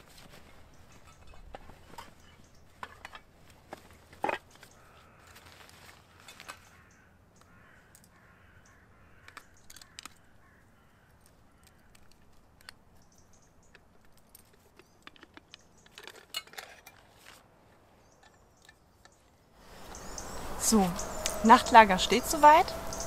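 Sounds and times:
camping cookware clinking: 0.3s - 4.8s, 6.2s - 6.8s, 12.6s - 17.4s.

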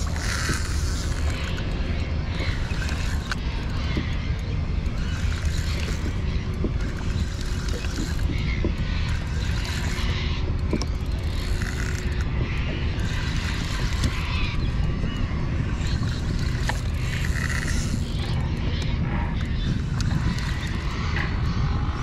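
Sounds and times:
water lapping around kayak: 0.0s - 22.0s
wind rumbling on microphone: 0.0s - 22.0s.

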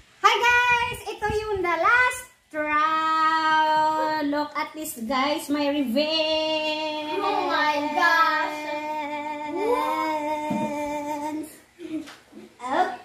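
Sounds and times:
girl singing a held note: 6.8s - 11.5s.

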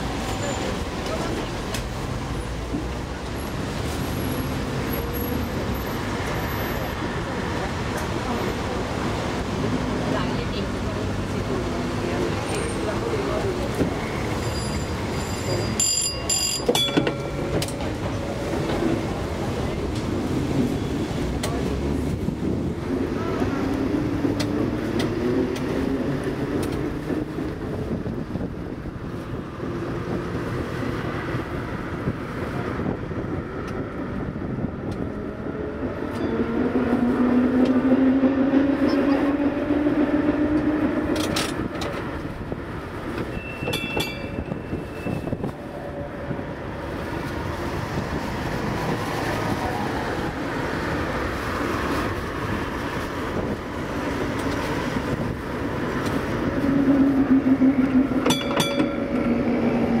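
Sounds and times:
tram wheels rumbling on rails: 0.0s - 60.0s
wind noise: 16.8s - 60.0s.

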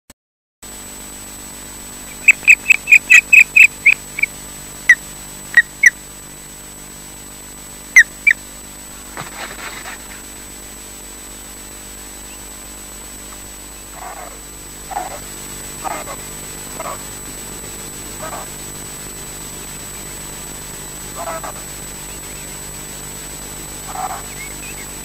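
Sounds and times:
osprey whistled chirps: 2.1s - 4.3s, 24.1s - 25.0s
bird taking off rustle: 9.0s - 10.4s.

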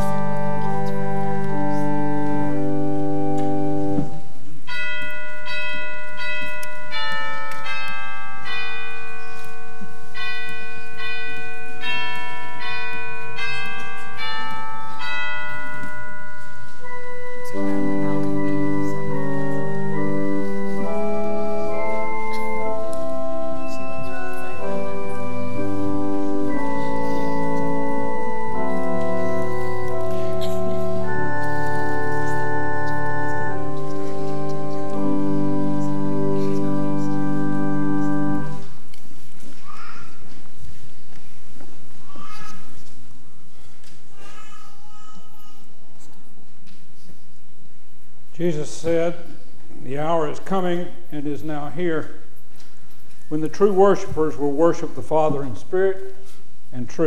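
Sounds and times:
church organ playing chords: 0.0s - 39.0s, 53.0s - 56.4s.

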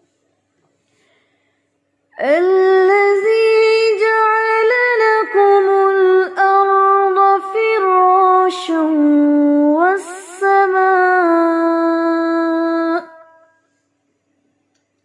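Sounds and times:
woman reciting melodic chant: 2.2s - 13.5s.

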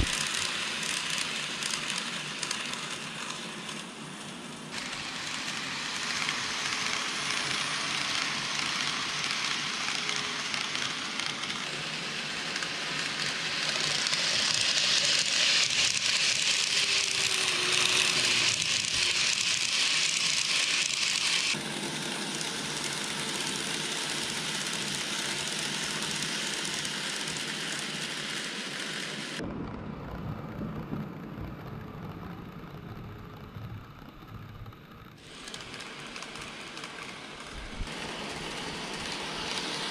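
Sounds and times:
model train wheels rattling on rail: 0.0s - 29.4s, 30.5s - 39.9s.

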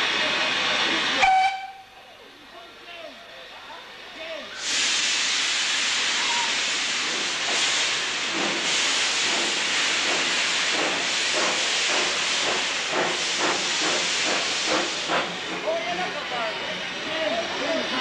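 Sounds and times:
steam locomotive chuffing: 3.9s - 18.0s
steam hissing: 4.2s - 18.0s.

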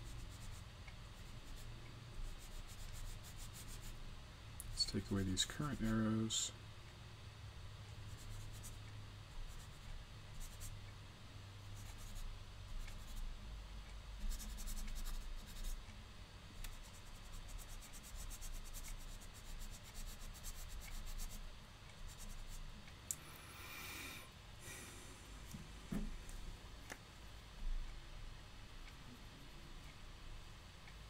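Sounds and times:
eraser rubbing on whiteboard: 0.0s - 4.0s, 11.8s - 13.3s, 14.2s - 15.8s, 16.6s - 22.6s.

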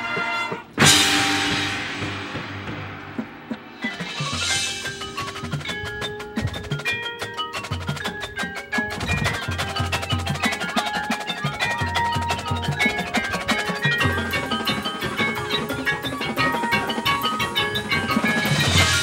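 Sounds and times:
bass drums and timpani strokes: 0.0s - 6.9s, 12.3s - 19.0s
mallet keyboards ringing notes: 0.0s - 19.0s.

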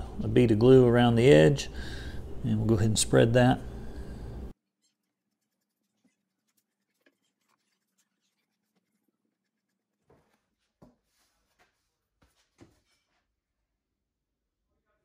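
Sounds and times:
brush scratching spreading glue: 4.8s - 11.8s.

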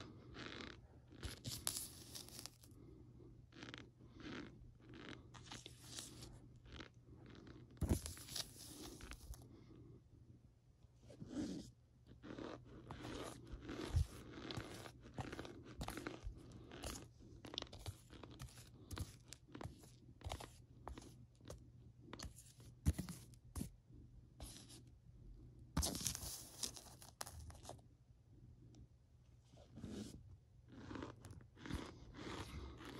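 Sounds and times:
spoon crunching powder: 0.0s - 2.8s, 3.5s - 9.4s, 11.3s - 23.7s, 25.8s - 27.8s, 30.0s - 32.9s.

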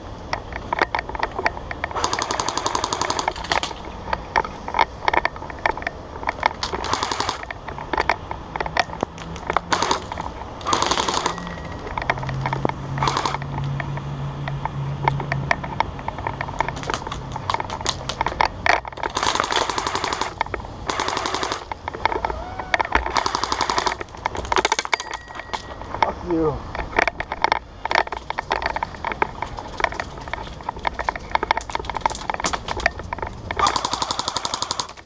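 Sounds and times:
airsoft guns firing: 1.9s - 3.8s, 6.6s - 7.4s, 9.7s - 11.8s, 13.0s - 13.4s, 19.1s - 21.7s, 23.1s - 24.9s, 33.6s - 35.0s.

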